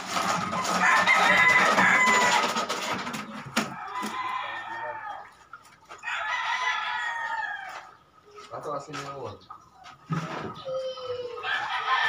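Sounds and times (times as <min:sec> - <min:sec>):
rooster crowing: 0:00.6 - 0:02.6, 0:06.0 - 0:07.9, 0:11.4 - 0:12.0.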